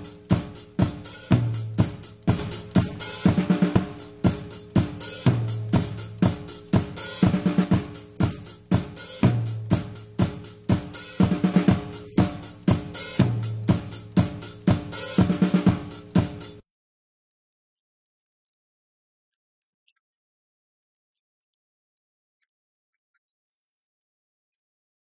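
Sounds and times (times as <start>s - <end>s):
drum kit playing a groove: 0.0s - 16.6s.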